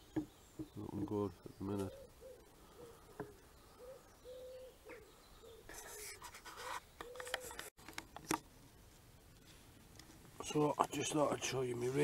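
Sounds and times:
pigeon cooing: 0:01.8 - 0:06.2, 0:07.0 - 0:07.6
rustling and scraping: 0:05.7 - 0:12.0.

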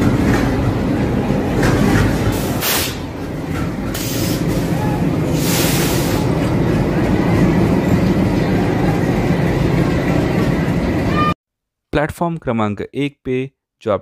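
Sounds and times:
diesel locomotives rumbling past: 0:00.0 - 0:11.4
brief hisses: 0:02.6 - 0:03.0.

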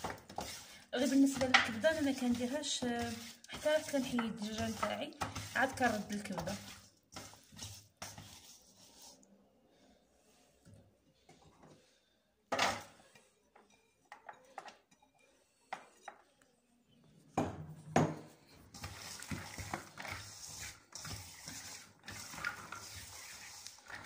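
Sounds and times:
rubbing and scraping in bowl: 0:00.0 - 0:09.3, 0:18.3 - 0:24.0.

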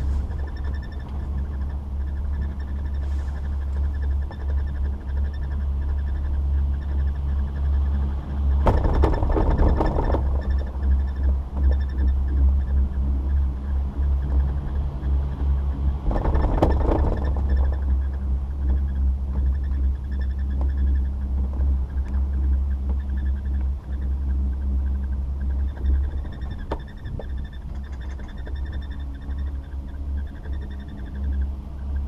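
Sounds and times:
faint high whine of lift: 0:00.0 - 0:08.7
low rumble of wind and chair: 0:00.0 - 0:32.0.

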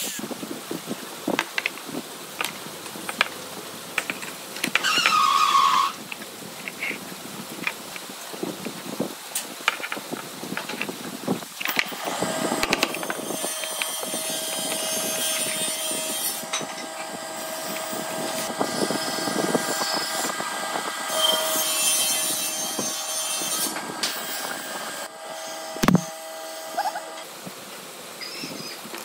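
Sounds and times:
wood scraping and rubbing: 0:04.0 - 0:09.0, 0:09.6 - 0:20.4, 0:25.8 - 0:26.1
brad nailer firing: 0:25.8 - 0:26.1.

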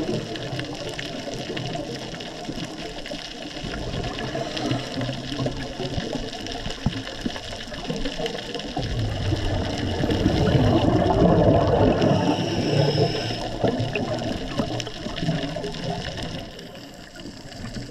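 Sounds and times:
air bubbling underwater: 0:08.5 - 0:16.5.

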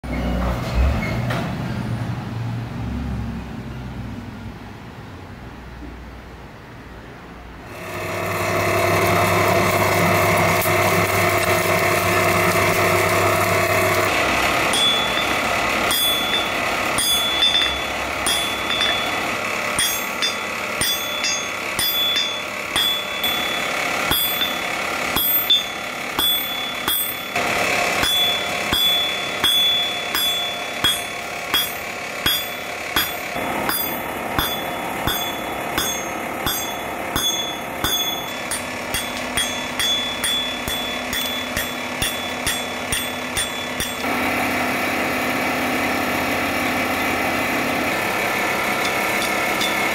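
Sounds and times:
hammer blows on anvil: 0:13.8 - 0:45.2, 0:48.6 - 0:49.9.

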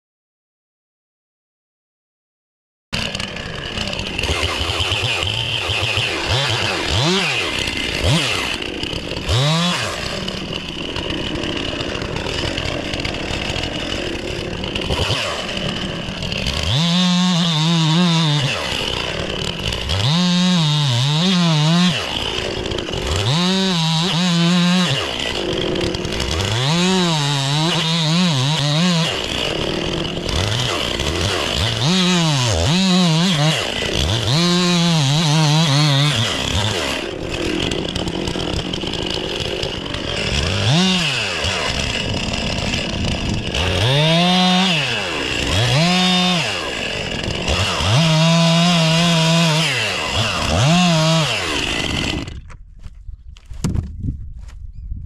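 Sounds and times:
chainsaw idling and revving: 0:03.0 - 0:52.6
chain cutting into a log: 0:04.0 - 0:10.7.

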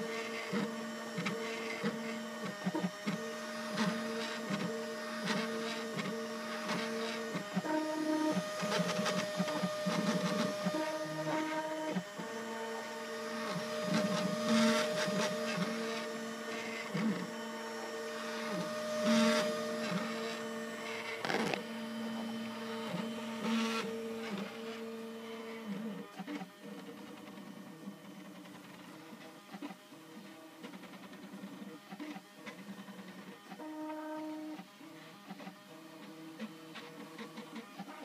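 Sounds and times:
stepper motors whining: 0:00.0 - 0:29.2.

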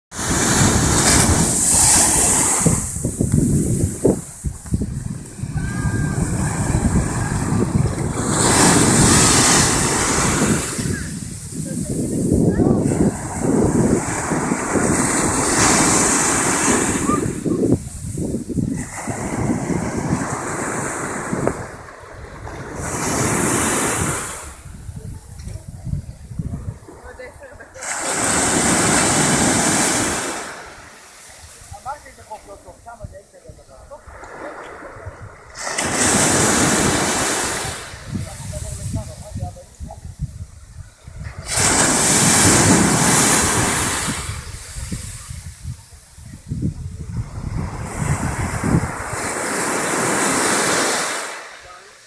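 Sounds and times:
wind buffeting microphone: 0:00.1 - 0:50.9
surf breaking on sandy shore: 0:00.1 - 0:52.0.

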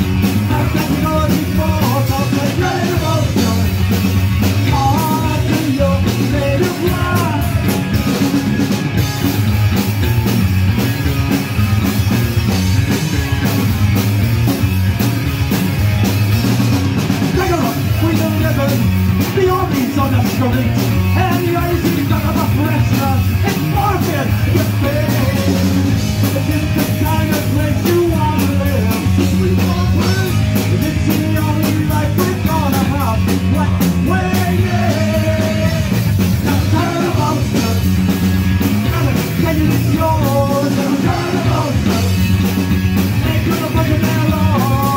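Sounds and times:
bass guitar: 0:00.0 - 0:44.9
drum kit with cymbals: 0:00.0 - 0:44.9
electric guitars: 0:00.0 - 0:44.9
person singing: 0:00.3 - 0:03.8, 0:04.7 - 0:07.8, 0:19.4 - 0:37.9, 0:38.8 - 0:42.3, 0:43.1 - 0:44.9.

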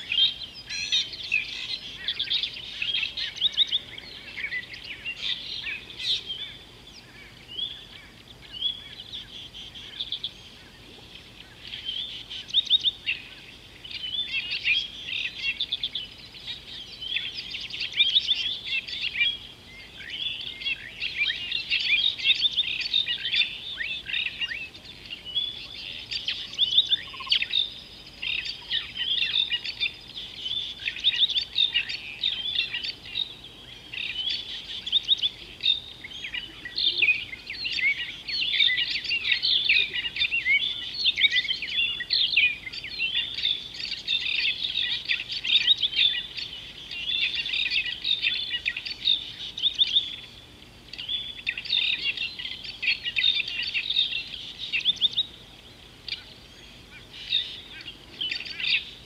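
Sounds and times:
small birds chirping: 0:00.0 - 0:59.0.

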